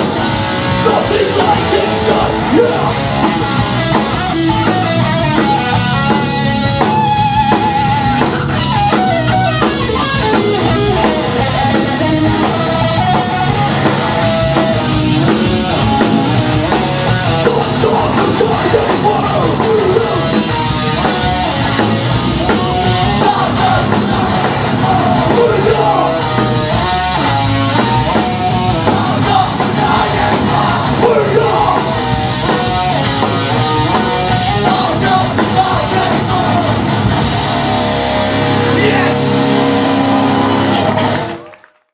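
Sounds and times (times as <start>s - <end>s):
pounding drums: 0.0s - 37.8s
distorted electric guitars: 0.0s - 41.7s
bass: 0.0s - 41.9s
shouted vocals: 0.8s - 3.2s, 22.4s - 26.4s, 28.8s - 32.1s, 38.6s - 40.6s.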